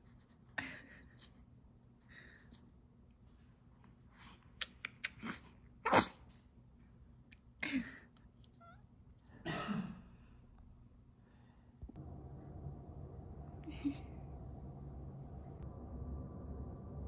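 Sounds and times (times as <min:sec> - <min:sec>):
baby sneezing: 0:05.2 - 0:06.3.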